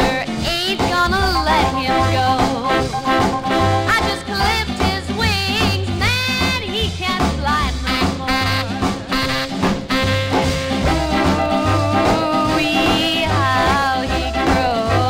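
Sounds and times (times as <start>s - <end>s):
rock and roll band playing: 0.0s - 15.0s
repeating bass line: 1.0s - 5.0s, 10.2s - 14.8s.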